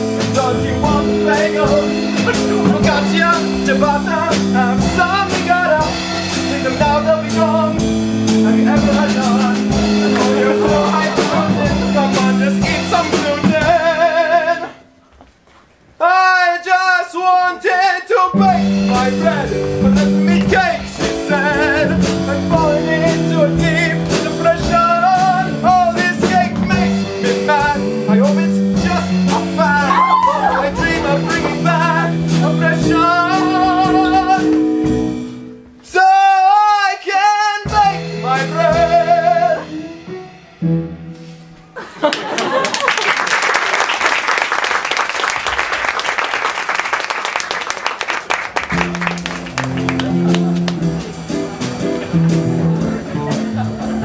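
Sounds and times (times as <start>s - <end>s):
instrumental accompaniment with beat: 0.0s - 15.8s, 18.3s - 36.3s, 37.4s - 42.6s, 47.8s - 54.0s
group of voices singing: 9.9s - 14.8s, 29.8s - 32.2s
audience applauding: 42.0s - 51.1s.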